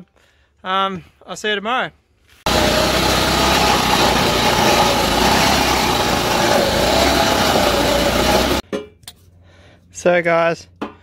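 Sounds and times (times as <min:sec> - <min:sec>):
lawnmower engine running: 0:02.5 - 0:08.6.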